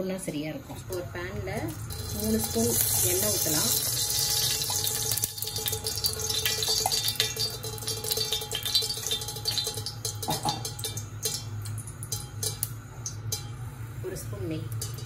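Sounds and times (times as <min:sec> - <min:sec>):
oil crackling and popping: 0:01.6 - 0:13.5, 0:14.7 - 0:15.0.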